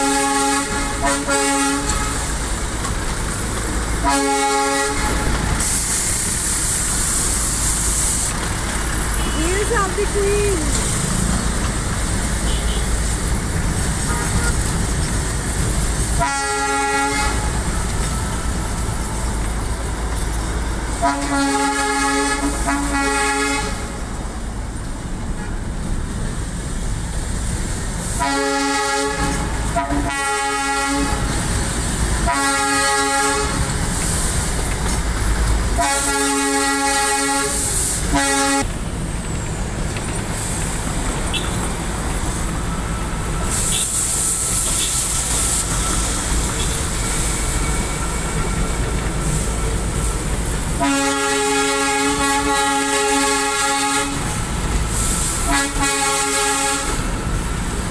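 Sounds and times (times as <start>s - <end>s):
train horn tooting: 0.0s - 2.4s, 4.0s - 5.4s, 12.4s - 12.9s, 14.0s - 14.7s, 16.2s - 17.6s, 21.0s - 24.0s, 28.2s - 31.4s, 32.2s - 33.8s, 35.8s - 38.7s, 50.8s - 54.4s, 55.4s - 57.1s
train running noise: 0.0s - 57.9s.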